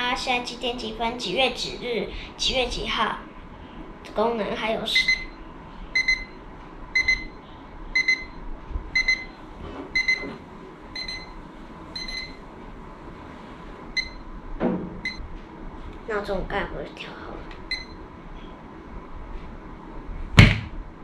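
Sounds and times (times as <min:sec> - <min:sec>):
alarm clock double beep: 0:05.0 - 0:05.4, 0:06.0 - 0:06.4, 0:07.0 - 0:07.4, 0:08.0 - 0:08.4, 0:09.0 - 0:09.3, 0:10.0 - 0:10.3.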